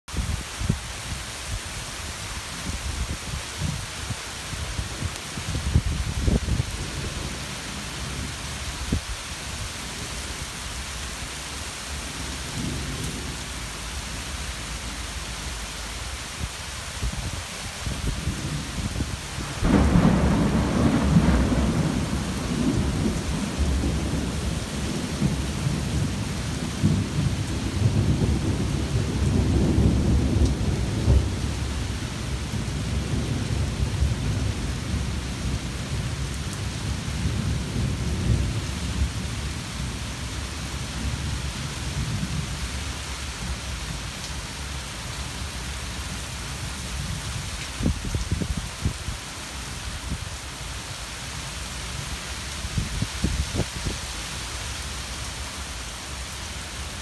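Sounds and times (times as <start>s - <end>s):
rain downpour: 0.0s - 57.0s
rolling thunder: 17.9s - 36.0s.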